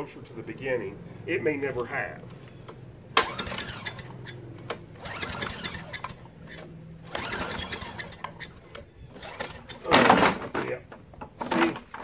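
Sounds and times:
engine recoil starter cranking: 3.2 - 10.3.

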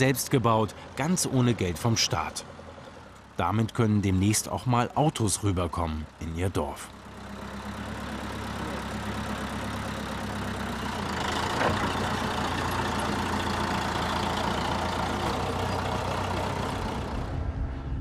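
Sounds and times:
crawler tractor engine running: 0.0 - 17.8.

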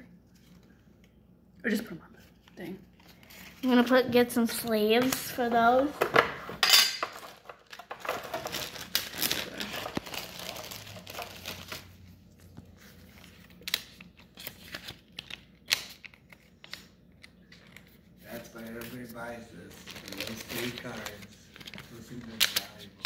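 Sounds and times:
plastic packaging crinkling: 7.1 - 12.0, 12.7 - 23.0.

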